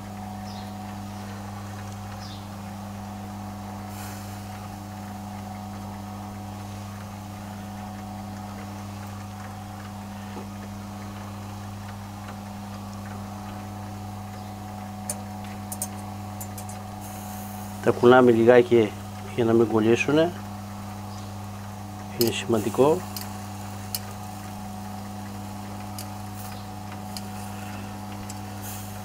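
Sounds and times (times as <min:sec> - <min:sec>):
rotisserie motor humming: 0:00.0 - 0:29.0
tongs clicking on skewers: 0:14.4 - 0:16.8, 0:21.1 - 0:28.9.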